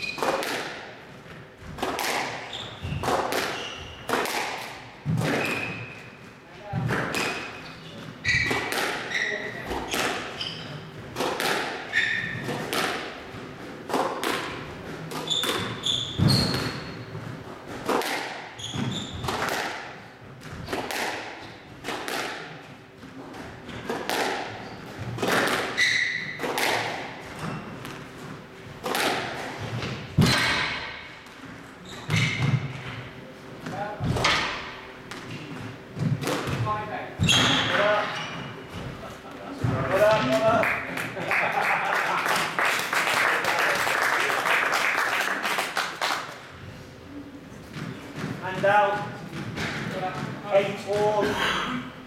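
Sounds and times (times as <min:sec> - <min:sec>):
court shoes squeaking: 0:00.0 - 0:19.6, 0:23.0 - 0:40.6
squash ball impacts: 0:00.0 - 0:40.6, 0:47.6 - 0:51.3.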